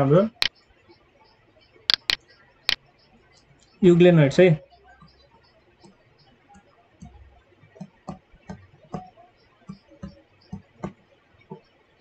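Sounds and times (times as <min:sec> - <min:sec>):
stylus clicking on tablet screen: 0:01.9 - 0:03.8.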